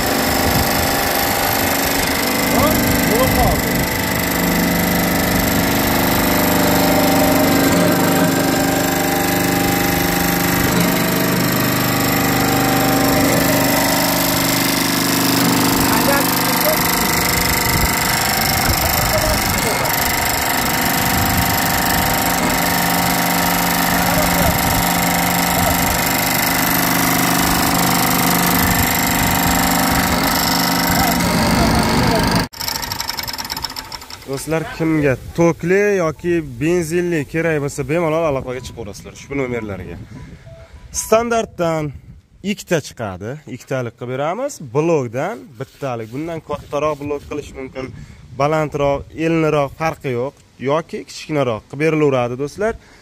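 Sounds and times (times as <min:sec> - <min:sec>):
fast mechanical rattle: 0:00.0 - 0:34.8
motor and hydraulic pump running: 0:00.0 - 0:34.8.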